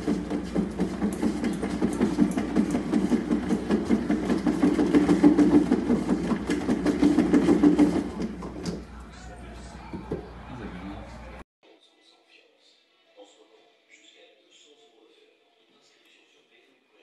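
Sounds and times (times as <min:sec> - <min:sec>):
cat exercise wheel rattling: 0:00.0 - 0:08.8.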